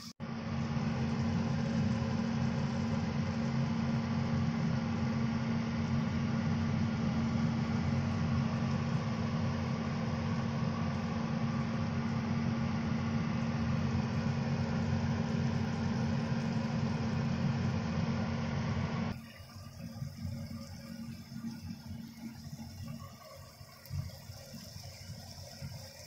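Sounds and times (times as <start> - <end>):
low machine hum: 0.0 - 26.0.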